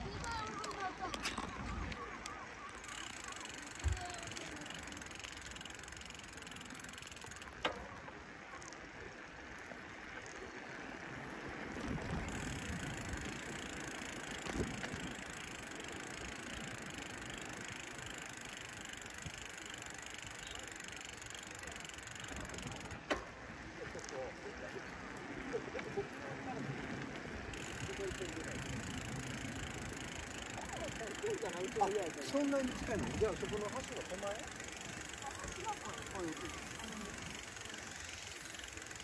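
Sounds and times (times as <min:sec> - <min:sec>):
bicycle clicks: 0:00.0 - 0:39.0
bicycle bumps: 0:02.8 - 0:08.2, 0:11.6 - 0:24.2, 0:25.0 - 0:39.0.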